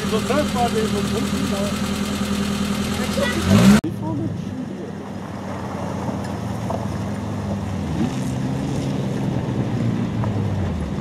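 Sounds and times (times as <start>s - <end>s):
off-road vehicle engine running: 0.0s - 11.0s.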